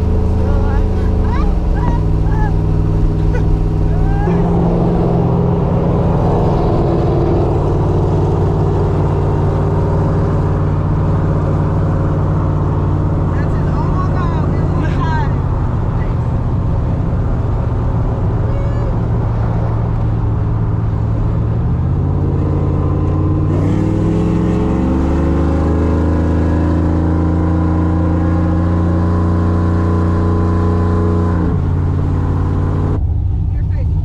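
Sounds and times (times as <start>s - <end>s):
truck engine accelerating hard: 0.0s - 34.0s.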